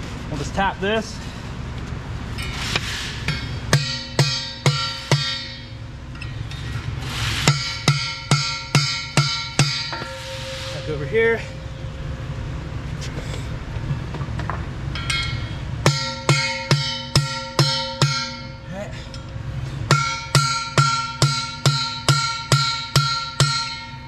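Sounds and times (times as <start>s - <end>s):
sledgehammer ringing on metal: 3.3s - 6.4s, 7.4s - 12.0s, 15.0s - 24.0s.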